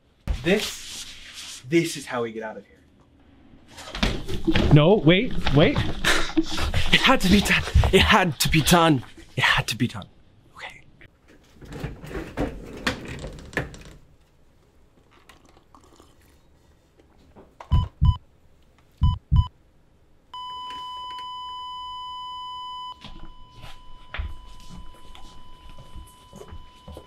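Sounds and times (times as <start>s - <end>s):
heart monitor flatline tone: 17.7s - 18.2s, 19.0s - 19.5s, 20.4s - 27.0s
heartbeat thumps: 17.7s - 18.2s, 19.0s - 19.5s.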